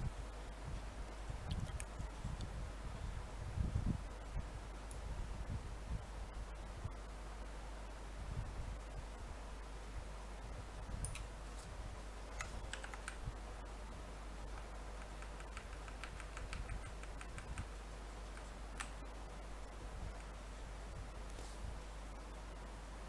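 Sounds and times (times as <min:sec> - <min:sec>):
low hum and hiss: 0:00.0 - 0:23.0
keyboard and mouse clicks: 0:01.5 - 0:02.0, 0:12.4 - 0:13.3, 0:14.5 - 0:17.7, 0:18.3 - 0:19.0.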